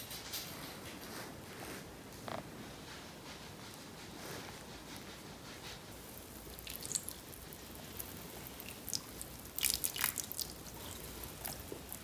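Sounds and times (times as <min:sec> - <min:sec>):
water pattering onto plant: 0:06.1 - 0:12.0
water splashing on wooden shelf: 0:06.6 - 0:10.8.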